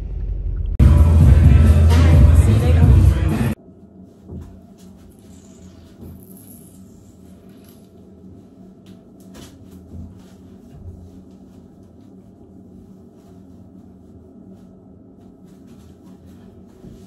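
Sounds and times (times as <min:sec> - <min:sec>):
steady low hum: 0:00.0 - 0:17.0
faint rustling of clothing: 0:04.0 - 0:17.0.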